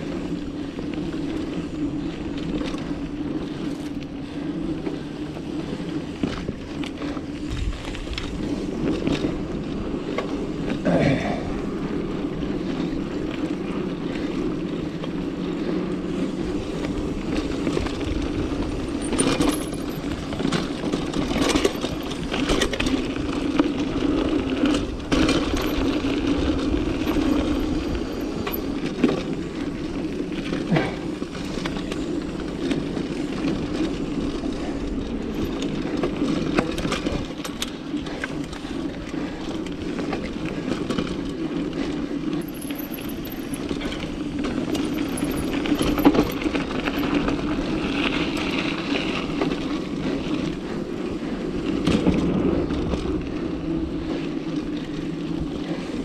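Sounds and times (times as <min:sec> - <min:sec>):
bike tyres rolling on dirt: 0:00.0 - 0:56.0
chain and frame rattling: 0:17.2 - 0:23.4, 0:24.2 - 0:29.3, 0:35.1 - 0:38.4, 0:42.3 - 0:49.0.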